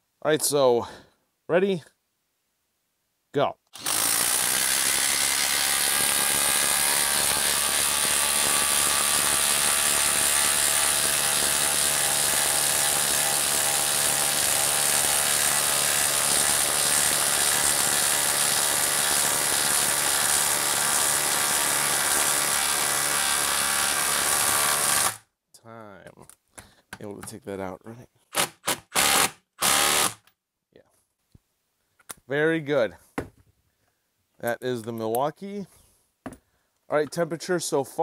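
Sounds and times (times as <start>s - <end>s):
impact driver hammering: 3.8s - 25.2s.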